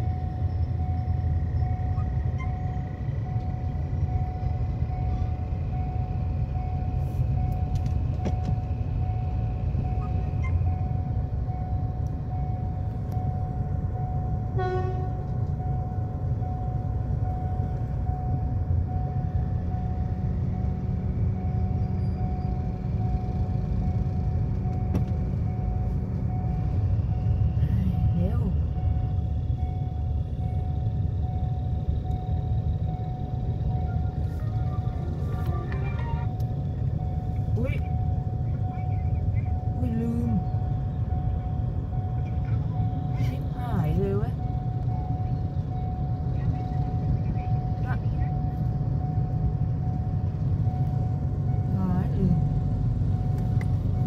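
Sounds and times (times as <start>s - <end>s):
train horn toot: 14.5s - 15.3s
steady high tone: 24.6s - 54.0s.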